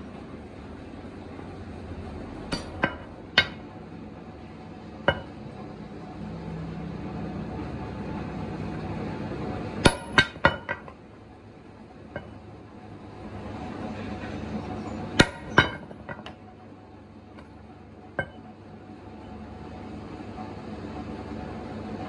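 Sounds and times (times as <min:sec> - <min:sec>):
low machine hum: 0:00.0 - 0:22.0
metal strikes on steel: 0:02.5 - 0:03.7, 0:05.0 - 0:05.5, 0:09.8 - 0:11.0, 0:12.1 - 0:12.4, 0:15.2 - 0:16.4, 0:18.2 - 0:18.5.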